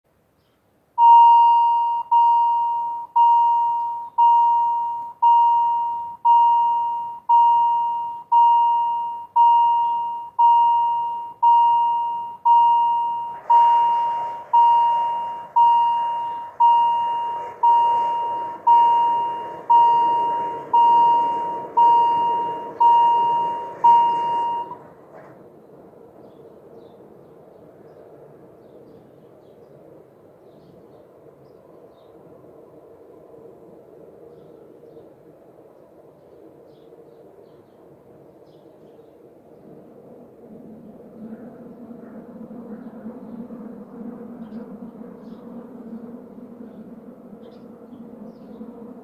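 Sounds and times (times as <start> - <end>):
barriers lowering steady noise: 0.8 - 49.0
level crossing warning bell: 1.0 - 24.9.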